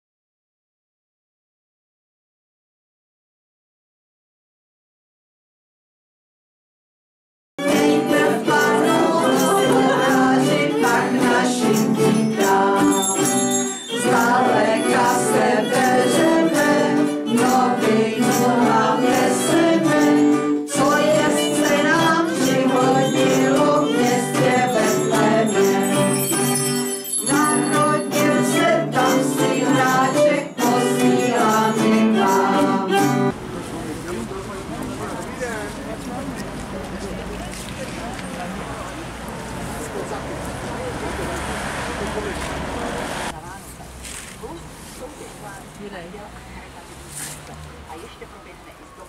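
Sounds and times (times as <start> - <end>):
festive holiday song with sleigh bells: 7.6 - 33.3.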